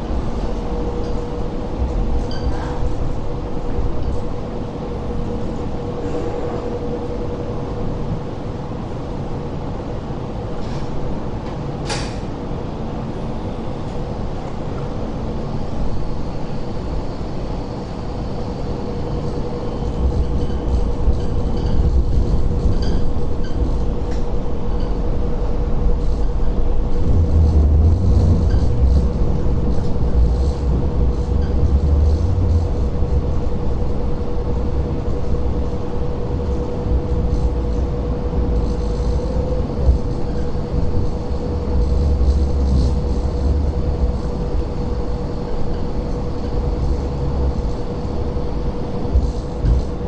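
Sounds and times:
light rail vehicle hum and rumble: 0:00.0 - 0:50.0.

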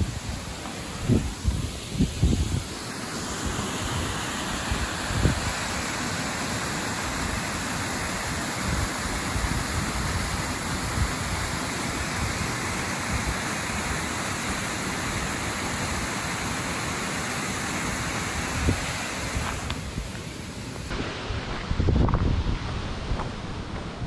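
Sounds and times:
waterfall pouring into pool: 0:01.7 - 0:19.8.

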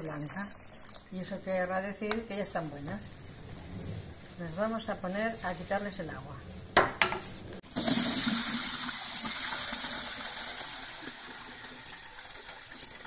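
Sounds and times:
water gushing into a bucket: 0:07.7 - 0:13.0.

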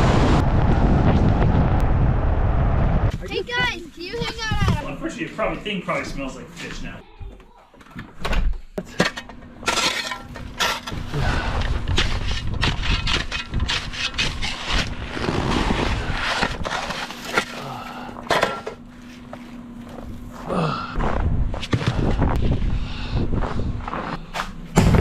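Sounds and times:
shovel crunching packed snow: 0:13.7 - 0:18.1.

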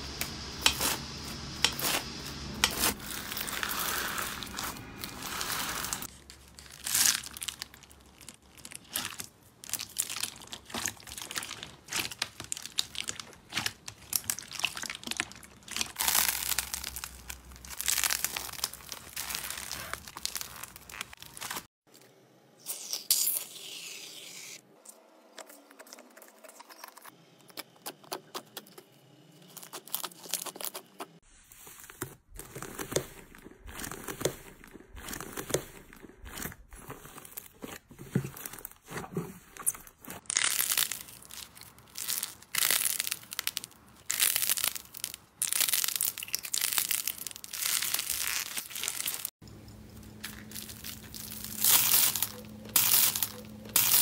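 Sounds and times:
paper crinkling: 0:01.6 - 0:21.7, 0:44.3 - 0:54.0
slime crackling and popping: 0:01.6 - 0:21.7, 0:40.2 - 0:49.3, 0:50.2 - 0:54.0
thick slime tearing: 0:01.6 - 0:21.7, 0:40.2 - 0:49.3.

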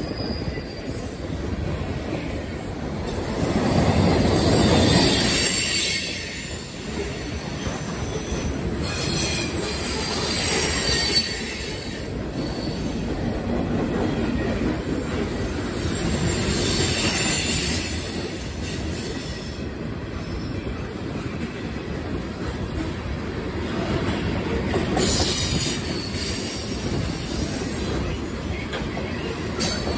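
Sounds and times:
train wheels rumbling on rails: 0:00.0 - 0:29.9
high-pitched wheel squeal: 0:04.4 - 0:06.7, 0:08.8 - 0:12.9.

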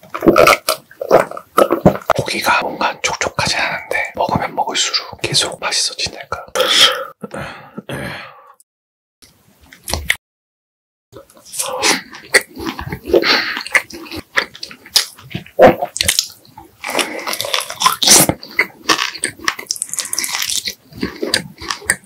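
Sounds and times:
wet chewing and smacking: 0:11.2 - 0:22.0.

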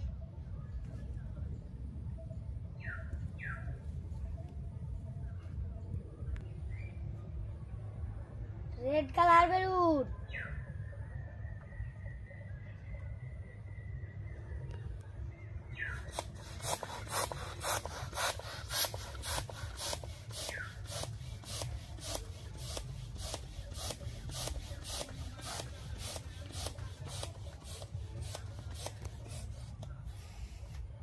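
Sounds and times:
hand balloon pump strokes: 0:16.0 - 0:30.7.

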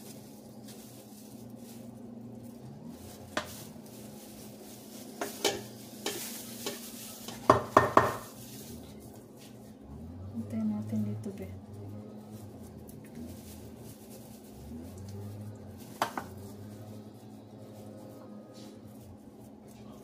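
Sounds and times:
spatula knocking metal pans: 0:05.2 - 0:08.3.

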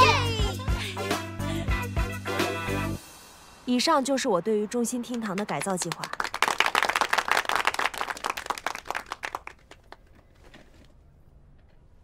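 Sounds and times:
group of people applauding: 0:05.1 - 0:10.1.

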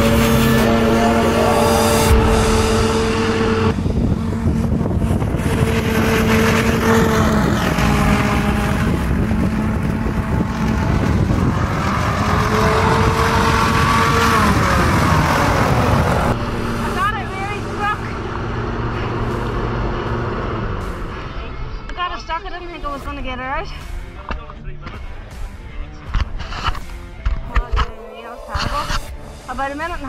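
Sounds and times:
rushing air: 0:00.0 - 0:21.1
hovercraft engine and fan running: 0:00.0 - 0:21.9.

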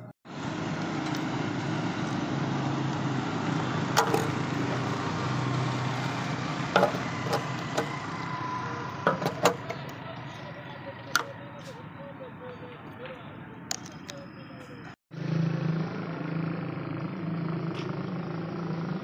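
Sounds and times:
road traffic and engine noise: 0:00.0 - 0:19.0.

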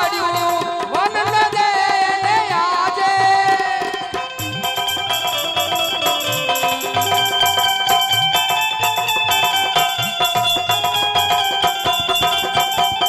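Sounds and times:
hand drum with bending pitch: 0:00.0 - 0:13.0
jingles on fast beat: 0:00.0 - 0:13.0
sustained melody lines: 0:04.0 - 0:13.0.

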